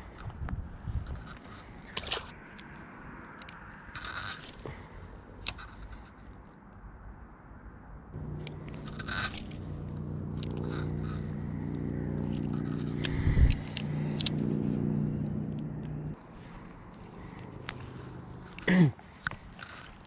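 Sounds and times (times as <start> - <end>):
fishing reel gears whirring: 8.2 - 16.2
sharp clicks: 8.2 - 16.2.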